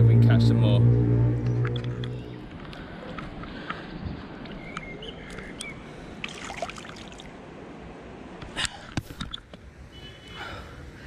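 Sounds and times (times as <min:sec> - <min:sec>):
water dripping and lapping: 0:05.4 - 0:07.5.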